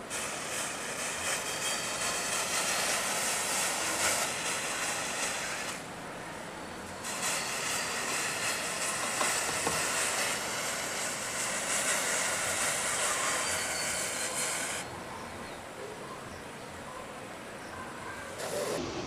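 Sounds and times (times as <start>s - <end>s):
matches flaring with fizzing hiss: 0.0s - 14.9s, 18.3s - 19.0s.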